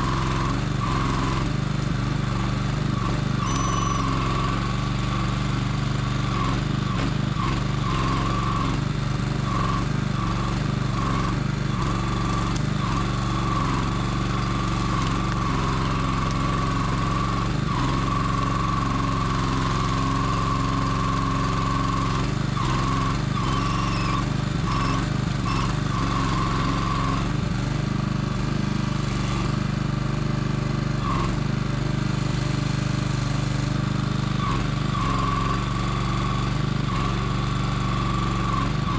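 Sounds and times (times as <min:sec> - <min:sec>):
hydraulic crane whine: 0:00.0 - 0:29.6
small engine running: 0:00.0 - 0:38.9.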